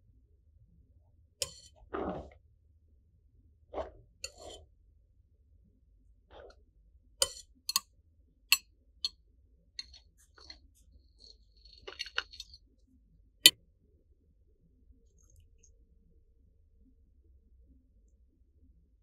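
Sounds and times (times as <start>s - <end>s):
metal tools clicking on a plate: 1.4s - 1.7s, 7.2s - 7.8s, 9.8s - 10.6s, 11.2s - 12.6s
small scraping ticks: 1.4s - 1.7s, 9.8s - 12.6s.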